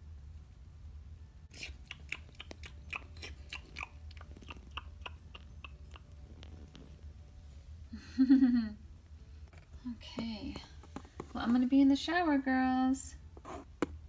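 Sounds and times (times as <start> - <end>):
crunchy chewing: 1.5 - 7.0.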